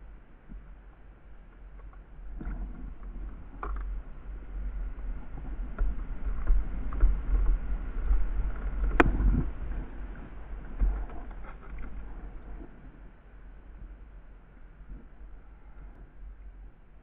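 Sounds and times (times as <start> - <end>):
low buffeting rumble on microphone: 0.0 - 17.0.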